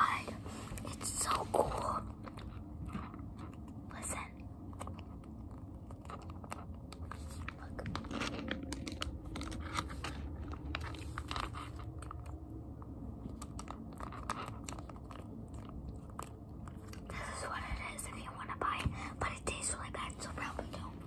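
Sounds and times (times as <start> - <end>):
plastic wrappers crinkling: 6.0 - 12.4.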